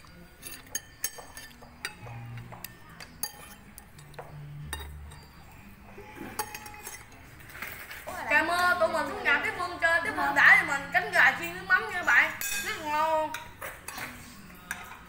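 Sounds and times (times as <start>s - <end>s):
spoons clinking on ceramic plates: 0.0s - 5.7s, 6.3s - 7.6s, 12.3s - 15.0s.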